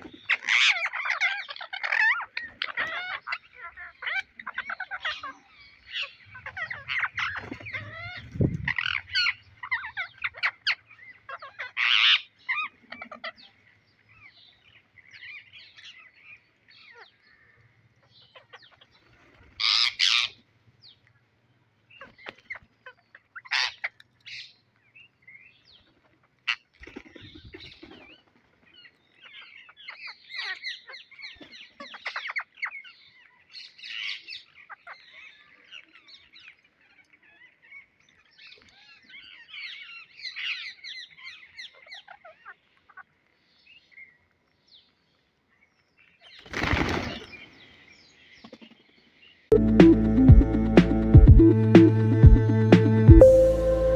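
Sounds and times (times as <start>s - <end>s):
parakeets chattering: 0.2s - 13.4s.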